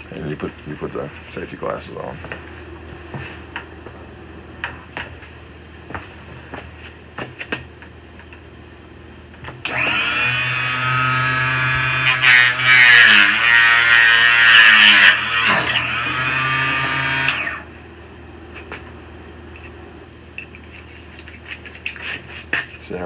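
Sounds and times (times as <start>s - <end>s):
electric motor whining: 9.7s - 12.6s, 15.1s - 17.7s.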